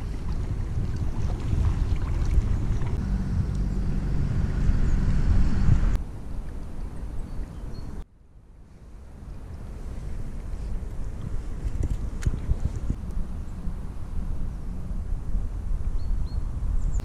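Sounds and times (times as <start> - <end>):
light water noise: 0.0 - 8.0, 8.6 - 16.0
wind rumbling on microphone: 0.0 - 17.0.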